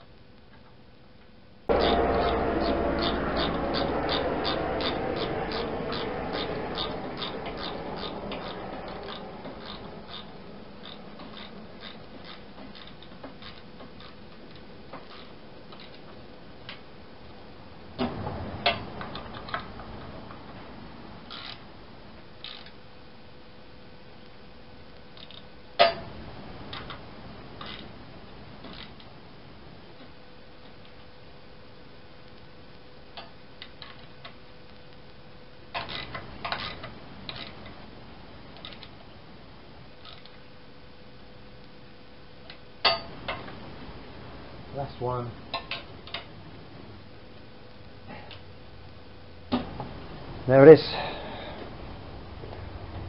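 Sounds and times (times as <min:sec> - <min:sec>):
loud metal knocks: 0:01.7 - 0:10.4
wrench clicking on bolts: 0:03.0 - 0:14.2, 0:21.3 - 0:21.6, 0:22.4 - 0:22.8.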